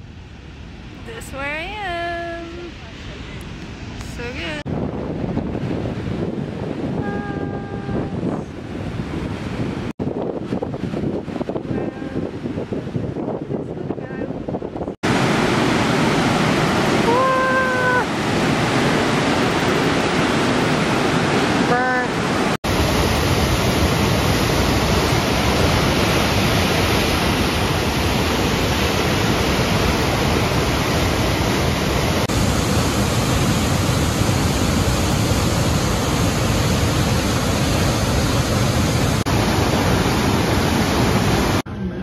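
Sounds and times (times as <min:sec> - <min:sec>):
waterfall roaring: 0:15.0 - 0:42.0.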